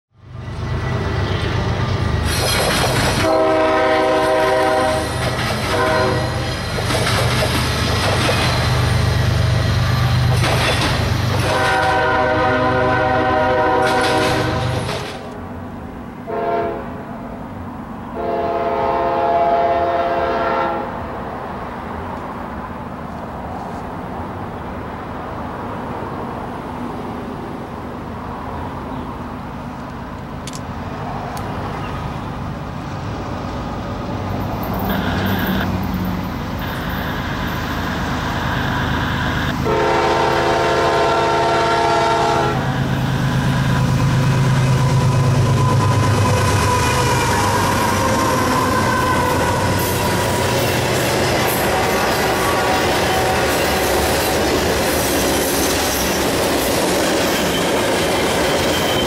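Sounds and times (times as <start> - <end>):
locomotive rumble: 0.2 - 20.8, 22.0 - 59.0
distant train horn: 3.1 - 6.8, 11.3 - 14.9, 16.2 - 17.1, 18.1 - 21.0, 36.6 - 54.7
locomotive horn blasts: 3.2 - 6.6, 11.4 - 14.8, 16.3 - 17.0, 18.2 - 21.0, 34.9 - 35.7, 36.6 - 44.2, 51.4 - 53.8.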